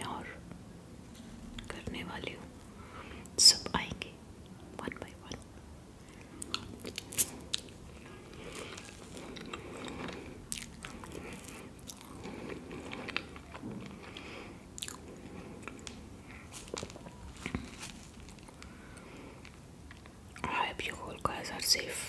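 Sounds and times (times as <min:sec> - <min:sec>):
wet chewing and lip smacks: 0:06.1 - 0:20.5.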